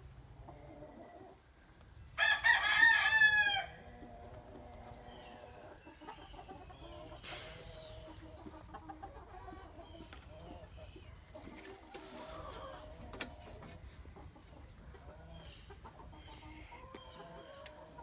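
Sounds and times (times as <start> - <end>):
fowl crowing: 2.2 - 3.8.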